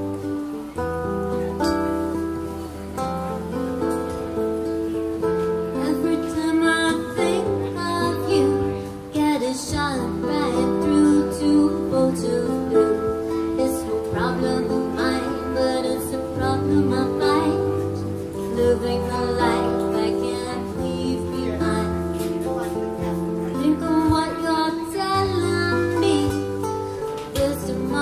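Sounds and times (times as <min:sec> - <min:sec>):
acoustic guitars playing chords: 0:00.0 - 0:28.0
woman singing: 0:05.6 - 0:28.0.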